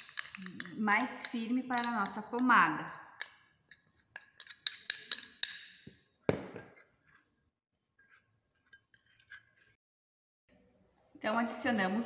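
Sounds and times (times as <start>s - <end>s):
spoon clicking in glass bowl: 0.0s - 5.8s
glass clinking: 0.0s - 6.6s.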